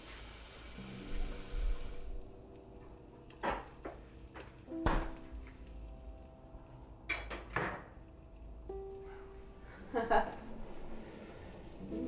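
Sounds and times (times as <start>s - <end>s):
pan sizzling: 0.0s - 2.6s
pots and utensils clinking: 7.1s - 8.0s.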